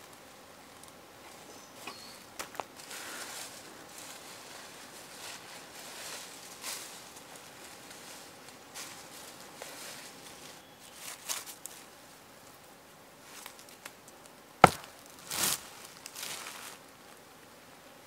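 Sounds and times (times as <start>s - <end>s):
dry leaves rustling: 0.7s - 12.0s, 14.6s - 16.8s
stone striking stone: 14.6s - 14.9s
rocks scraping: 14.6s - 15.6s.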